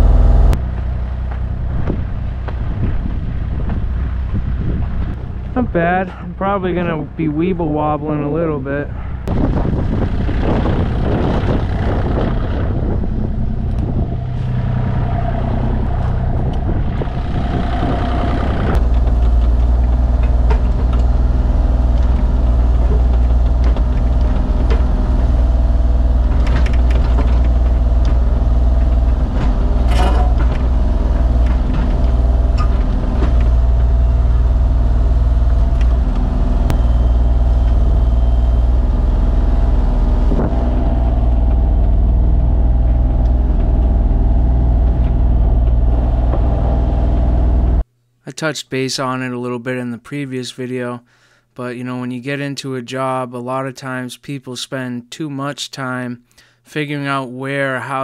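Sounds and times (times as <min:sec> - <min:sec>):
digger engine under load: 0:00.0 - 0:47.8
metal clanks: 0:17.8 - 0:34.2.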